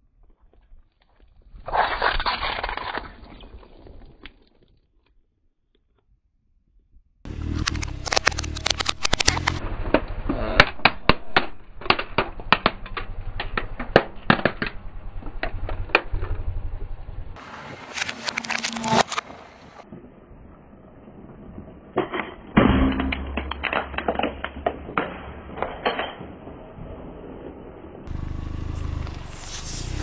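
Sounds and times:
low rumble of rolling tyre: 0:07.3 - 0:17.9, 0:19.4 - 0:30.0
plastic toy cracking: 0:07.6 - 0:09.6.

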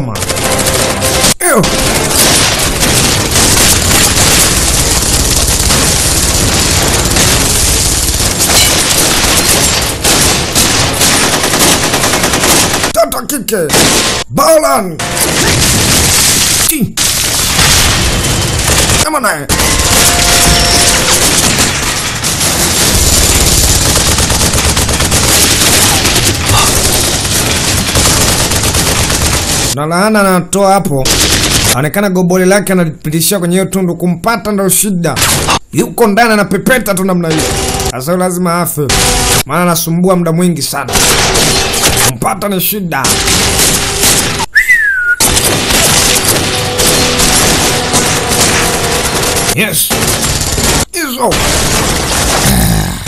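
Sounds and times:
machine-gun and rifle fire: 0:00.0 - 0:13.0, 0:15.0 - 0:29.8, 0:31.0 - 0:31.8, 0:37.3 - 0:37.9, 0:38.9 - 0:39.5, 0:40.9 - 0:42.1, 0:43.0 - 0:44.5, 0:45.2 - 0:52.8
heavy continuous gunfire: 0:00.0 - 0:14.3, 0:15.0 - 0:29.8, 0:31.0 - 0:31.8, 0:37.2 - 0:38.0, 0:38.9 - 0:39.7, 0:40.9 - 0:42.2, 0:43.0 - 0:44.5, 0:45.2 - 0:53.0
explosion booms: 0:45.2 - 0:53.0.

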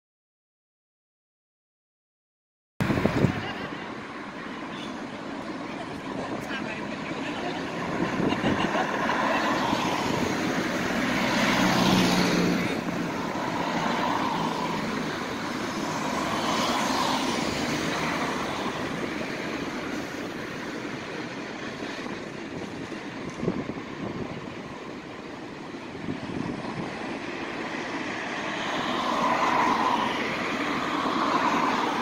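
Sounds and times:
bus engine running: 0:02.8 - 0:29.2
van passing: 0:02.8 - 0:32.0
car passing on wet road: 0:06.8 - 0:20.6, 0:26.3 - 0:32.0.

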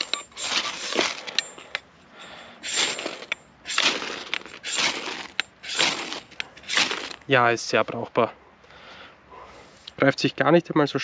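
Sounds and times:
machete spine scraping ferro rod: 0:00.0 - 0:07.3.

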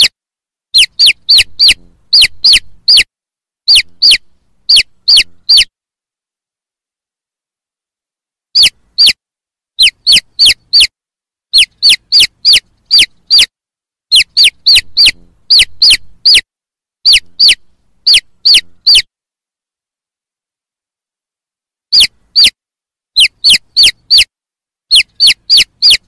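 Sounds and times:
chicks peeping: 0:00.8 - 0:03.1, 0:03.7 - 0:05.7, 0:08.6 - 0:09.2, 0:09.8 - 0:10.9, 0:11.5 - 0:13.5, 0:14.1 - 0:16.4, 0:17.1 - 0:19.1, 0:21.9 - 0:22.6, 0:23.2 - 0:24.3, 0:24.9 - 0:26.0.

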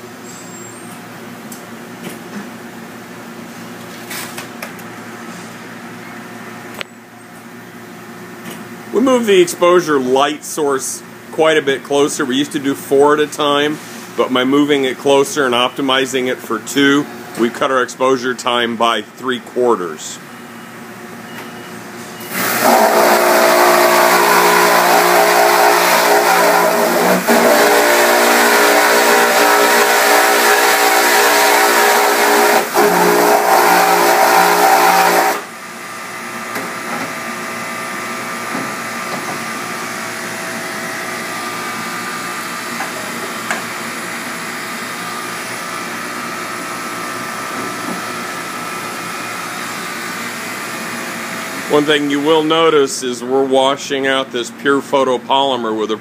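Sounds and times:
pressure washer spraying: 0:22.3 - 0:35.5.

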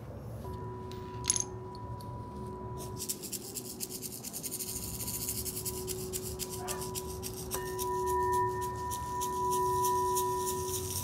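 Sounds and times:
singing bowl ringing: 0:00.4 - 0:03.3, 0:04.7 - 0:11.0
hand rattle shaking: 0:02.8 - 0:11.0.

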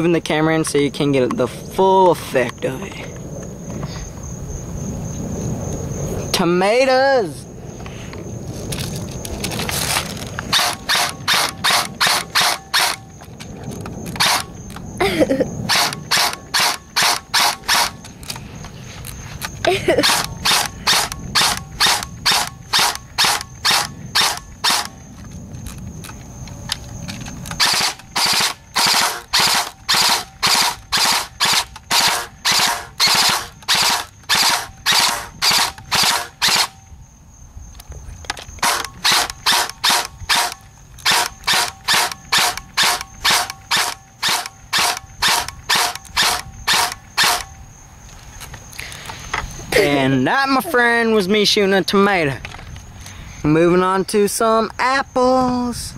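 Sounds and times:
airsoft rifle firing single shots: 0:14.2 - 0:14.5, 0:15.7 - 0:17.9, 0:20.0 - 0:24.9, 0:27.6 - 0:36.8, 0:38.6 - 0:47.5.

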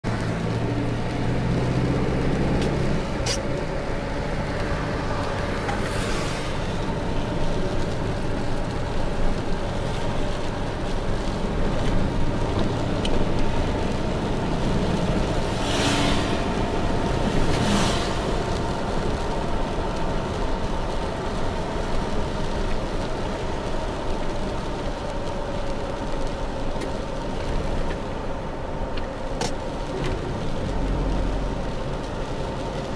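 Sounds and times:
tyres hissing on wet pavement: 0:00.1 - 0:32.9
louder swishes: 0:15.5 - 0:16.7.

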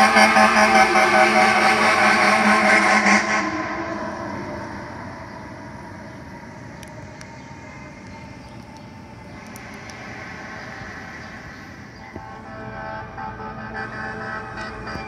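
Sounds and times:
fire engine horn: 0:00.0 - 0:05.6, 0:12.0 - 0:15.0
street traffic noise: 0:00.0 - 0:15.0
truck moving off: 0:00.0 - 0:15.0.

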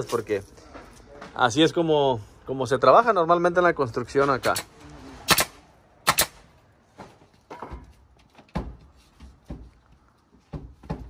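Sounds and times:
nail gun firing: 0:05.3 - 0:06.4.

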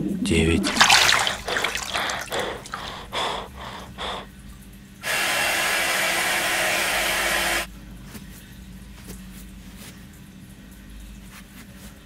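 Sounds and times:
man gasping: 0:00.6 - 0:04.3
quick panting breaths: 0:00.7 - 0:04.3.

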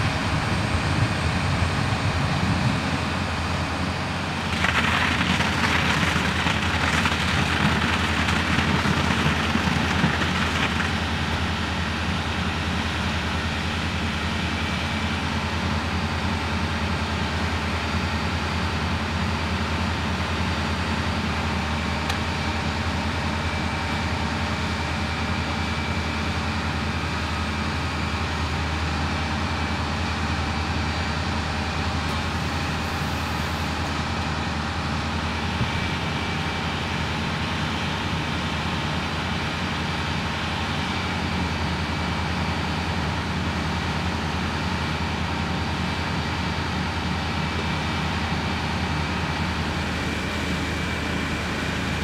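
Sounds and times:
heavy vehicle engines humming: 0:00.0 - 0:04.6.

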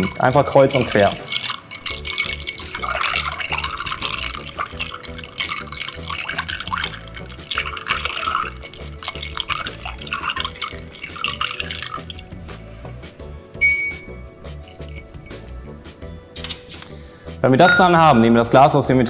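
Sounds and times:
ice clinking against glass: 0:00.0 - 0:12.3, 0:13.6 - 0:15.1
liquid sloshing: 0:00.0 - 0:12.7, 0:14.1 - 0:15.3.

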